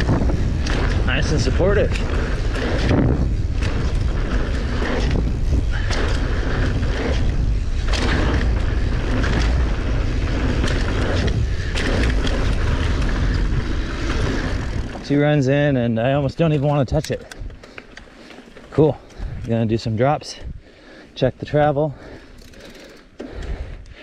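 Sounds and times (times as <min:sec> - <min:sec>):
wind buffeting on microphone: 0:00.0 - 0:15.3, 0:18.8 - 0:20.8
bike knocks and rattles: 0:00.0 - 0:19.6
tyres rolling over dirt: 0:00.0 - 0:20.2.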